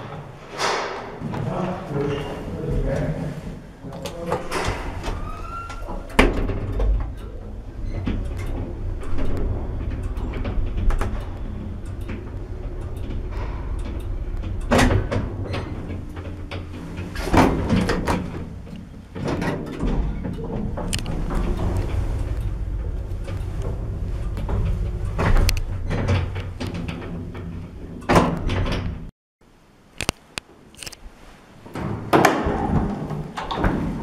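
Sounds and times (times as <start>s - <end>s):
lift door shutting: 0.0s - 3.0s, 4.0s - 29.1s
lift humming: 1.4s - 29.1s
lift machinery clunking: 3.8s - 29.1s.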